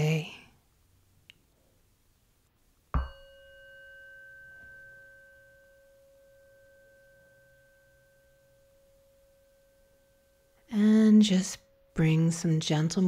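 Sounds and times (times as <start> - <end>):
singing bowl ringing: 3.0 - 12.6.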